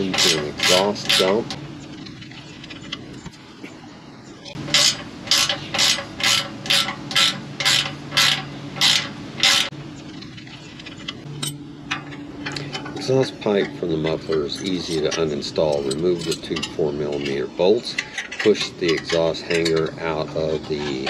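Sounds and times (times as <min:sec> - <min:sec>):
ratcheting wrench clicking: 0:04.6 - 0:09.7.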